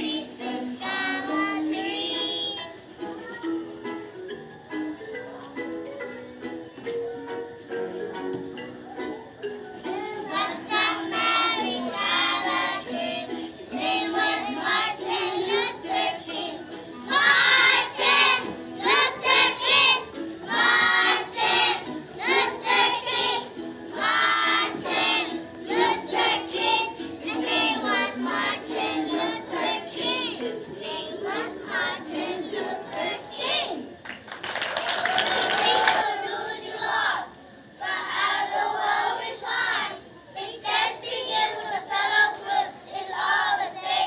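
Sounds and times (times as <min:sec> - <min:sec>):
children's choir singing: 0:00.0 - 0:34.0, 0:35.2 - 0:44.0
instrumental accompaniment: 0:02.2 - 0:33.0.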